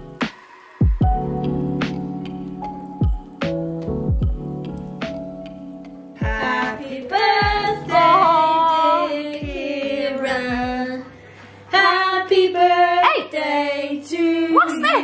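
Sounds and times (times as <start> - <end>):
background music deep notes: 0.0 - 12.6.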